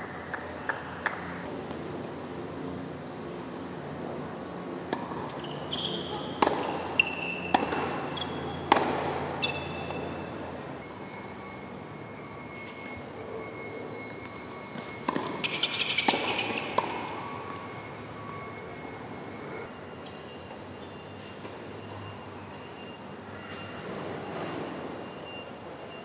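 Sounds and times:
tennis balls hit with rackets: 4.8s - 10.1s, 15.0s - 17.2s
sneakers squeaking: 4.9s - 10.5s, 13.7s - 18.5s.

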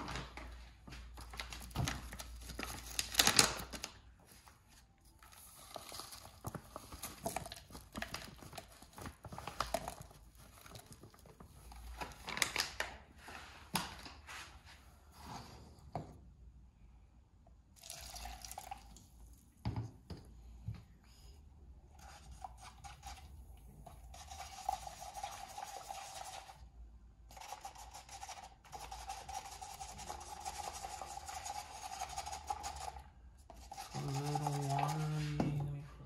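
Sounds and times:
spoon stirring paste in cup: 21.9s - 26.7s, 27.3s - 35.8s.

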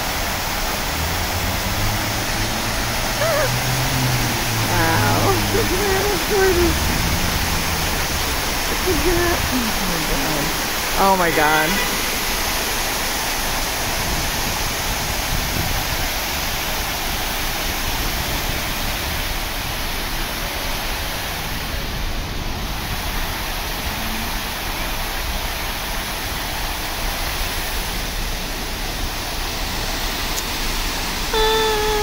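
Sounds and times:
fountain jets splashing: 0.0s - 32.0s.

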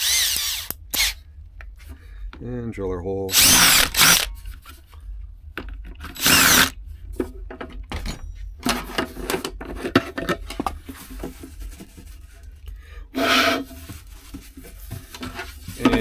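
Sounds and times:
power drill drilling plastic: 0.0s - 1.2s, 3.3s - 4.3s, 6.2s - 6.7s
rubbing and knocking on tank: 13.4s - 16.0s.

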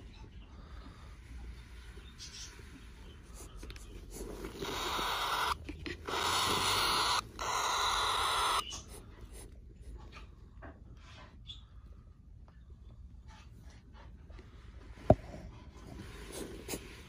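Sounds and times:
birds peeping: 0.0s - 9.4s
baby birds hissing raspily: 0.6s - 9.4s.

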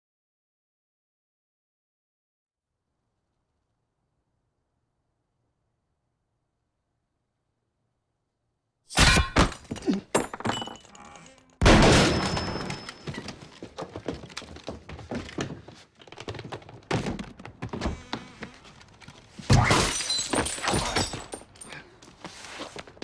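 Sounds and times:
gunshots: 11.6s - 12.9s.

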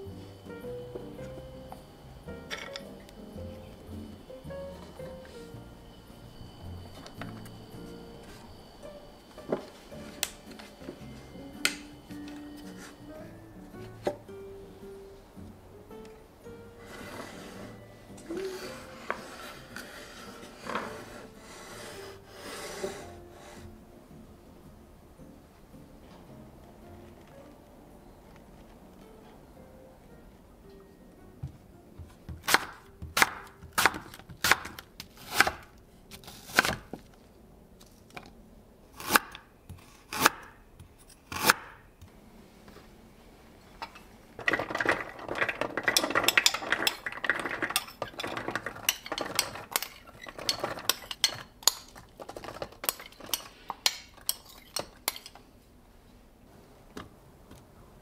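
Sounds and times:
dishes and utensils clinking: 0.9s - 3.7s, 43.8s - 55.5s
metal spoon scraping glass bowl: 45.8s - 51.9s.

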